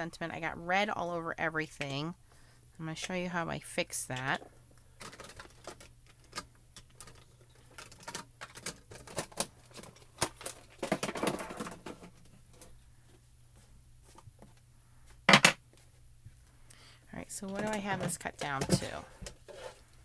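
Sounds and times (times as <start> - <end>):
shuffling on table: 17.6 - 19.9.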